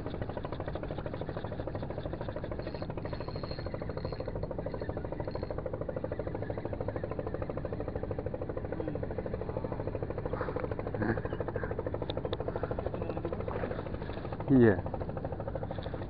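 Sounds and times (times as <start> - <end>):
engine droning: 0.0 - 16.0.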